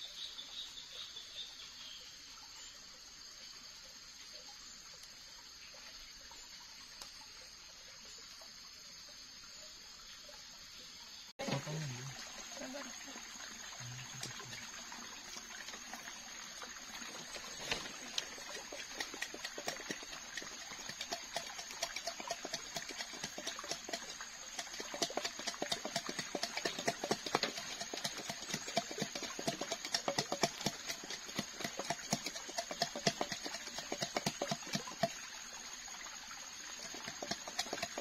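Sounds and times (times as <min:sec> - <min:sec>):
wooden pestle pounding hollow knocks: 0:18.4 - 0:35.2, 0:36.8 - 0:38.0.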